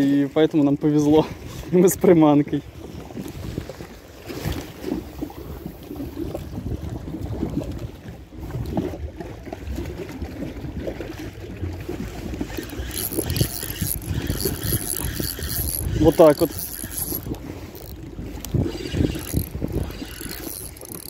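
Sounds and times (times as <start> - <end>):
small waves lapping: 1.1 - 21.0.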